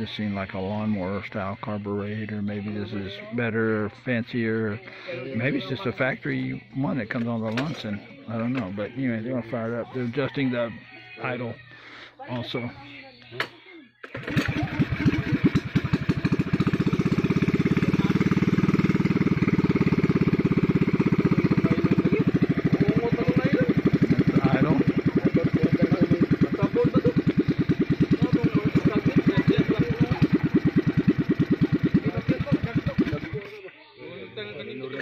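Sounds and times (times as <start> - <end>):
small engine running: 14.0 - 33.6.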